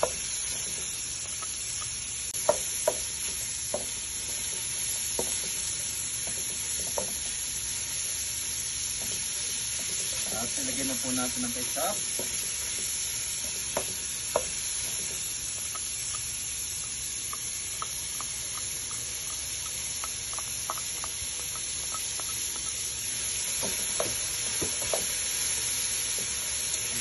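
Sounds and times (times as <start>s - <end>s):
spatula scraping and tapping pan: 0.0s - 7.4s, 12.1s - 25.5s
vegetables sizzling in a frying pan: 0.0s - 27.0s.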